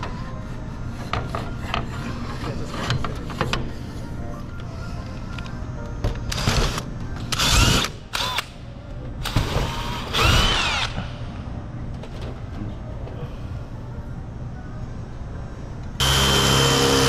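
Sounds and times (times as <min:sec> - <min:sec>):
power drill whining: 0:09.8 - 0:11.0, 0:16.0 - 0:17.0.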